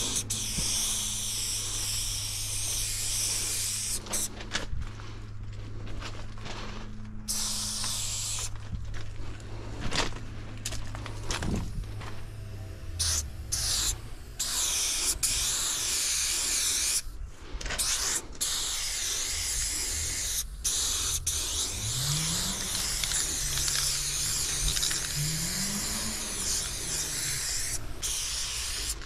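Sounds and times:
spray paint can hissing: 0:00.0 - 0:04.3, 0:07.3 - 0:08.6, 0:12.4 - 0:17.2, 0:17.8 - 0:29.0
low hum rising in pitch: 0:04.0 - 0:14.6, 0:21.2 - 0:28.0.

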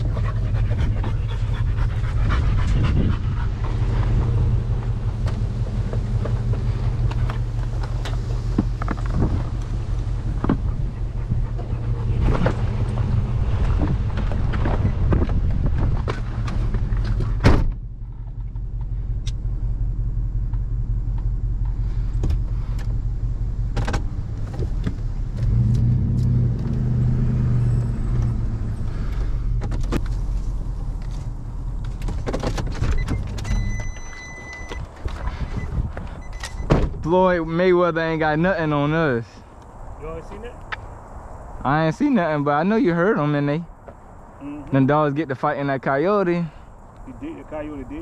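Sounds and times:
wind noise: 0:00.0 - 0:17.8, 0:24.0 - 0:37.5
pickup truck engine and road noise: 0:00.0 - 0:48.0
steady electronic beep: 0:33.0 - 0:34.8.

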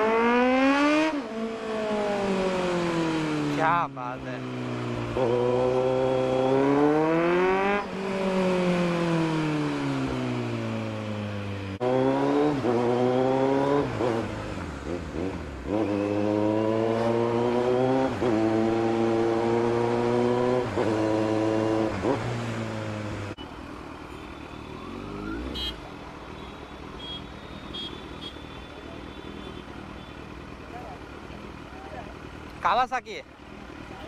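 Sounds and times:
motorcycle engine revving: 0:00.0 - 0:23.4.

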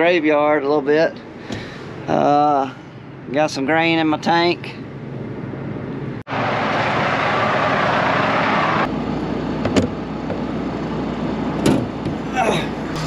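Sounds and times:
combine harvester humming: 0:08.4 - 0:13.0.

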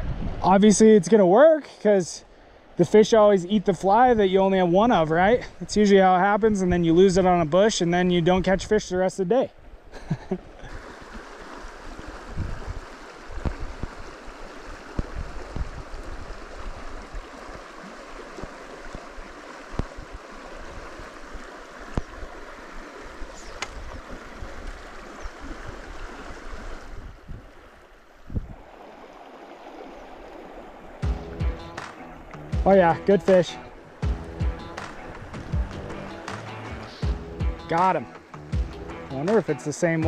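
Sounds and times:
river water rushing over riffle: 0:10.4 - 0:37.0
low bumps: 0:31.0 - 0:39.3.

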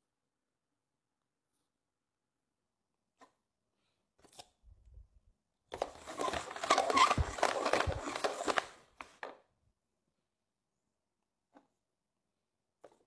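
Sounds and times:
plastic cups scraping on table: 0:05.8 - 0:09.3.

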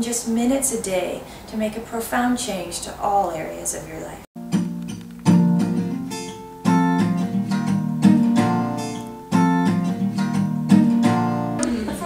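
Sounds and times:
strummed acoustic guitar chords: 0:04.4 - 0:12.0.

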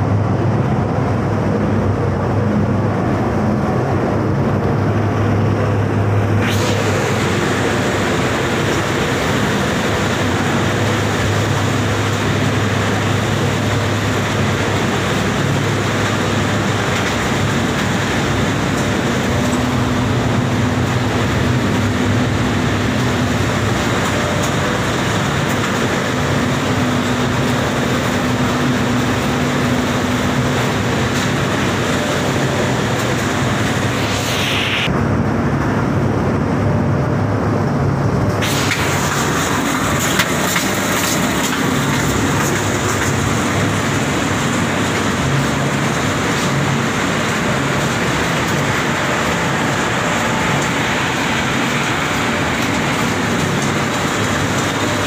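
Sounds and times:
low motor hum: 0:00.0 - 0:55.0
machinery running loud din: 0:00.0 - 0:55.0
high hiss: 0:33.5 - 0:34.9.

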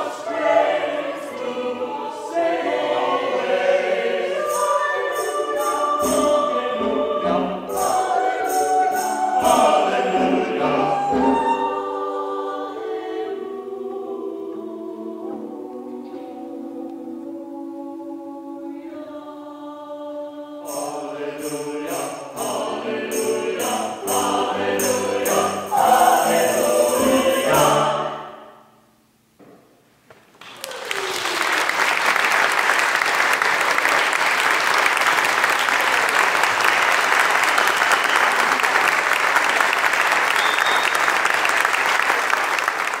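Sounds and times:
choir singing a hymn: 0:00.0 - 0:28.8
audience applause: 0:30.4 - 0:43.0.

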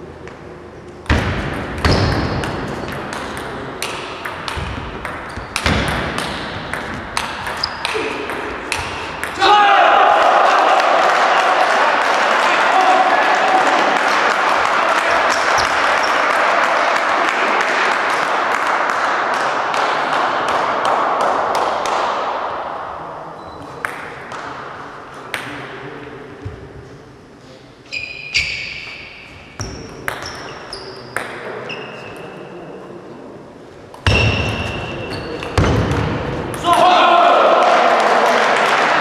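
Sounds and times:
table tennis ball bouncing: 0:01.0 - 0:09.4, 0:29.6 - 0:31.5
crowd clapping: 0:10.1 - 0:21.3, 0:37.5 - 0:39.0.

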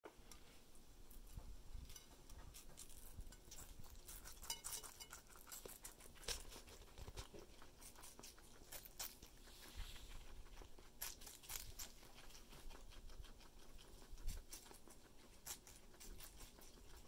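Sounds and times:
guinea pigs chewing watermelon: 0:01.0 - 0:17.0
high chink: 0:01.8 - 0:05.8.

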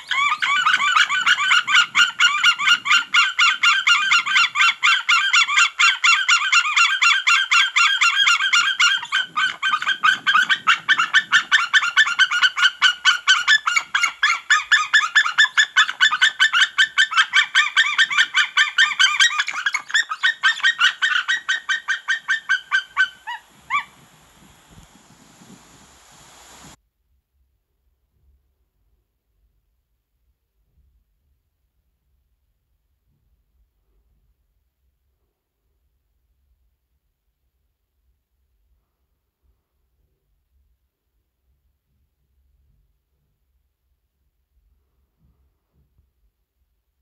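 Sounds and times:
eagles calling: 0:08.1 - 0:26.8.

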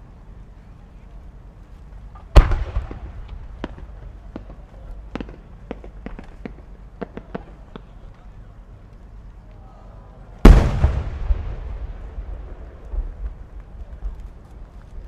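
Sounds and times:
firework boom: 0:02.4 - 0:04.5, 0:10.4 - 0:14.1.

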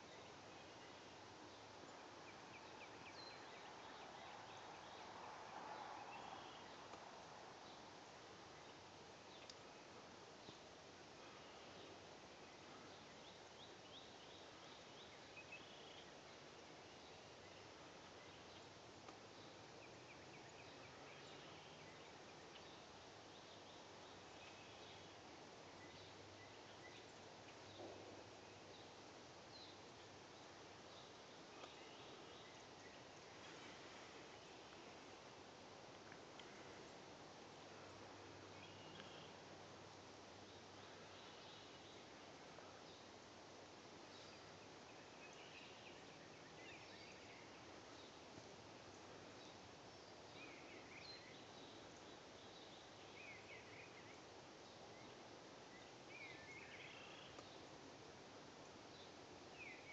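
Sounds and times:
bird chirping: 0:00.0 - 0:05.1, 0:11.2 - 0:35.0, 0:37.8 - 0:39.5, 0:48.9 - 0:57.7, 0:58.9 - 0:59.9
soft rustle: 0:00.0 - 0:46.0
soft hiss: 0:00.0 - 0:59.9.

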